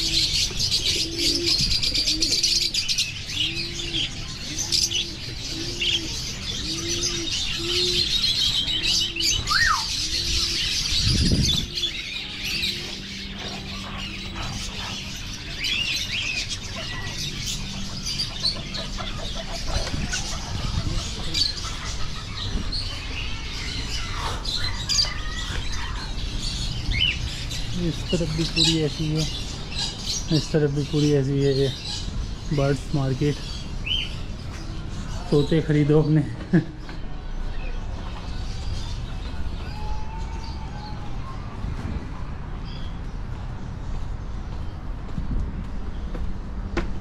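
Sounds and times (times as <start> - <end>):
low cooing call: 0.0 - 15.4
caged birds chirping: 0.0 - 47.0.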